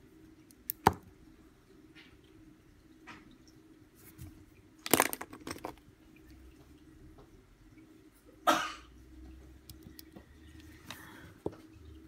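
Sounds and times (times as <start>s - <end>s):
pencils clicking and clattering: 4.8s - 5.8s.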